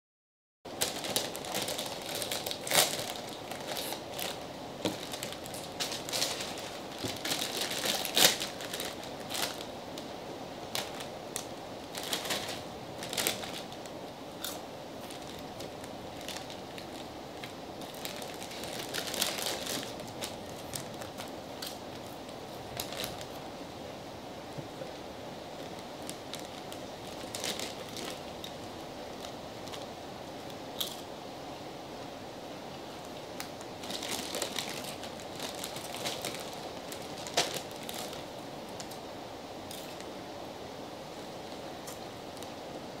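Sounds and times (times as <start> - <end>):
chip bags crinkling: 0.7 - 10.1, 10.7 - 23.4, 24.9 - 29.9, 33.4 - 39.0, 39.7 - 40.1.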